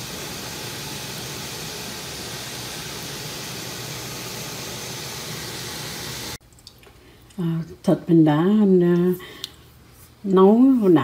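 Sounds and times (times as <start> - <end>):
pot boiling: 0.0 - 6.4.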